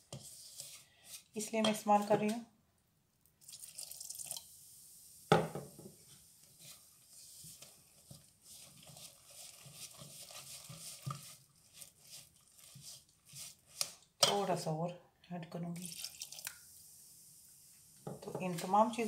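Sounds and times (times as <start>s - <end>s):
hand mixing batter in bowl: 0.0s - 2.4s, 6.2s - 14.7s, 15.6s - 16.8s, 18.2s - 19.0s
glass set down on worktop: 5.3s - 5.9s.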